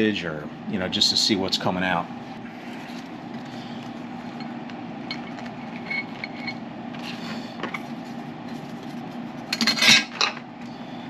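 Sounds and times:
steady low hum: 0.0 - 11.0
soft handling noise: 2.4 - 9.5
metal parts clinking: 5.1 - 6.6.

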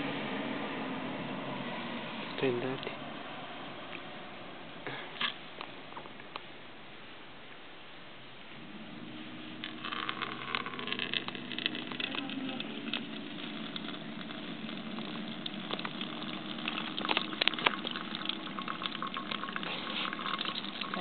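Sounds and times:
water trickling into a plastic jug: 9.3 - 21.0.

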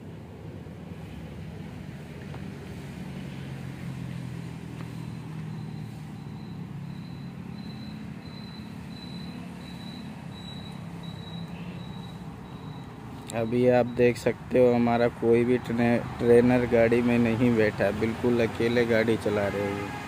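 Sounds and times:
car engine hum: 0.0 - 20.0
short high reversing beeps: 4.9 - 14.1.

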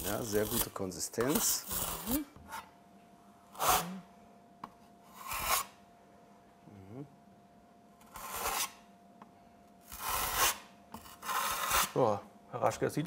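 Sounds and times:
trowel scraping adhesive: 0.0 - 2.2, 3.6 - 3.8, 5.1 - 5.8, 8.0 - 8.8, 9.9 - 12.0.

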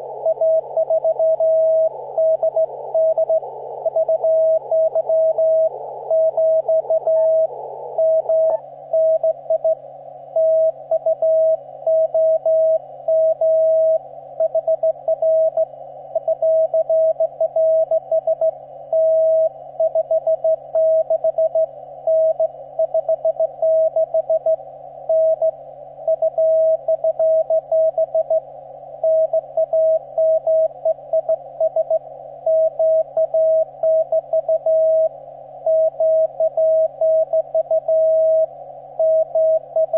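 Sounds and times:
radio hiss: 0.0 - 19.9
faint low hum: 0.0 - 39.9
morse code beeps: 0.2 - 9.8, 10.4 - 25.5, 26.1 - 35.1, 35.7 - 39.9.

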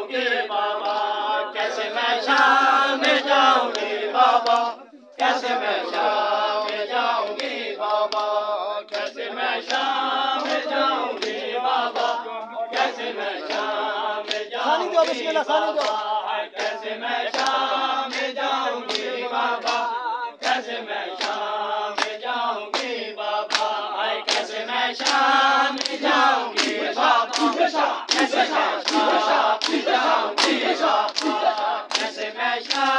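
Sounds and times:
men chanting in unison: 0.0 - 32.9
hands slapping chests: 2.2 - 6.1, 12.8 - 16.0, 16.6 - 18.3, 18.9 - 20.6, 21.2 - 32.9.

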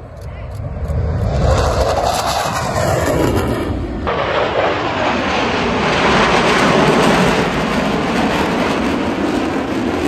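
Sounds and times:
aircraft roar: 0.0 - 10.0.

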